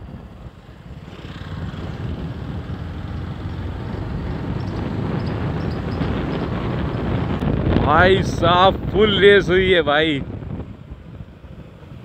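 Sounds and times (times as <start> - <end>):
motorcycle engine accelerating: 0.0 - 7.9
wind rushing over microphone: 0.0 - 12.0.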